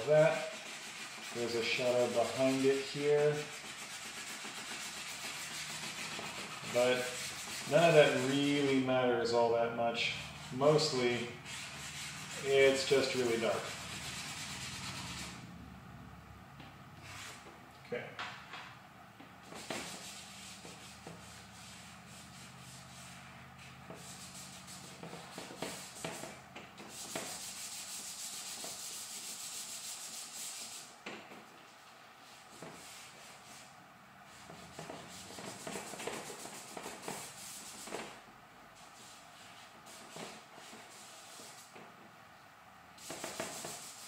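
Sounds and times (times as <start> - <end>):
charcoal scratching on paper: 0.1 - 8.8, 10.2 - 15.4, 19.4 - 30.9, 34.3 - 38.2, 38.8 - 41.8, 43.0 - 44.0.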